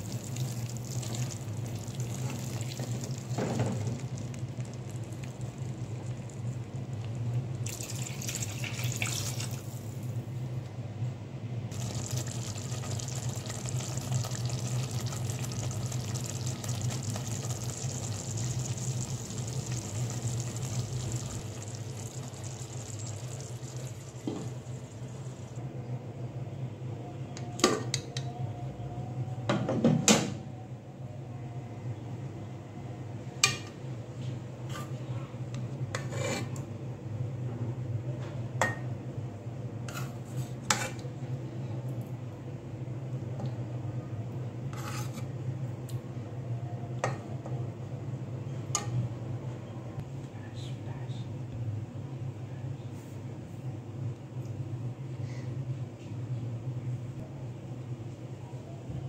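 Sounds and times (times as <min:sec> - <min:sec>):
water pouring into pot: 0:00.0 - 0:06.4, 0:07.6 - 0:09.9, 0:11.7 - 0:25.6
curry simmering hiss: 0:00.0 - 0:10.1, 0:11.7 - 0:25.6.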